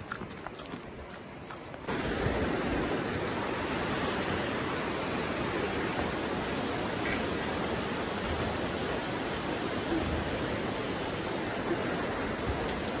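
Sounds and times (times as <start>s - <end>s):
fast-flowing river rushing: 1.9s - 13.0s.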